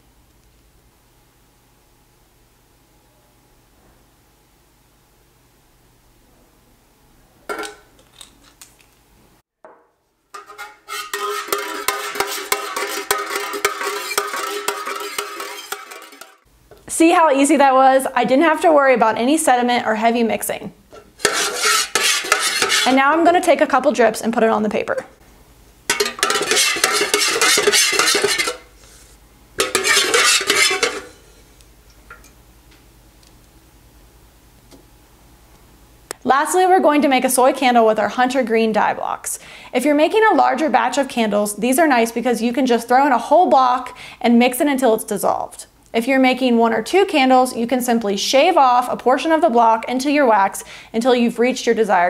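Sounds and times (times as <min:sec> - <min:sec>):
metal spoon scraping metal pitcher: 0:10.3 - 0:16.5, 0:21.0 - 0:23.1, 0:25.9 - 0:28.7, 0:29.6 - 0:31.2.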